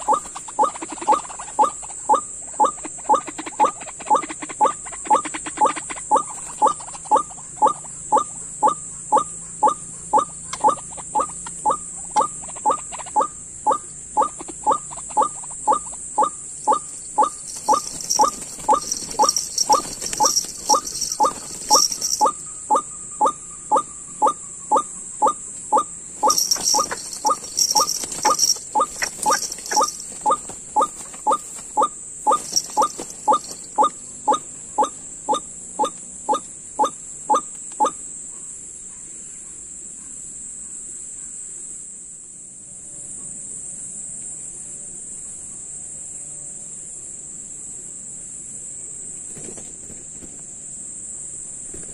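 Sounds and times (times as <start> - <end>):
high-pitched insect drone: 0.0 - 38.2
waterbird calling: 8.6 - 34.9.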